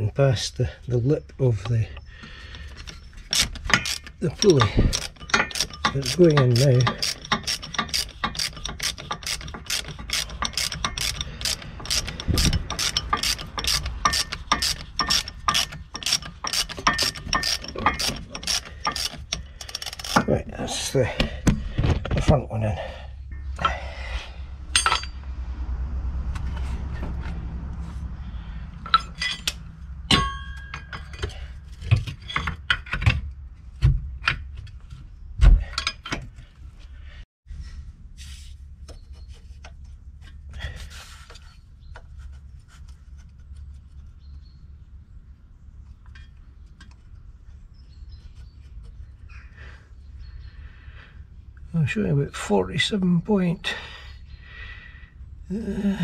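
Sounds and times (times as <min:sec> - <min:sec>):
metal tools clinking on bracket: 0:02.8 - 0:20.4, 0:24.7 - 0:25.2, 0:28.8 - 0:33.1.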